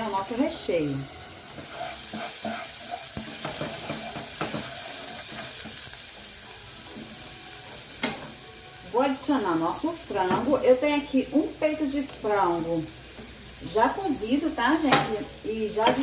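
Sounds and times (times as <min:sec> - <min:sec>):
spices sizzling in hot oil: 0:00.0 - 0:16.0
wooden spoon stirring and scraping: 0:01.4 - 0:05.8.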